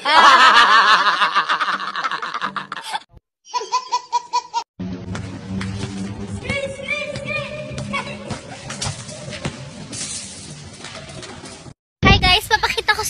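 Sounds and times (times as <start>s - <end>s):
young men laughing: 0.0s - 4.6s
baby laughing: 2.7s - 4.6s
music: 4.8s - 10.1s.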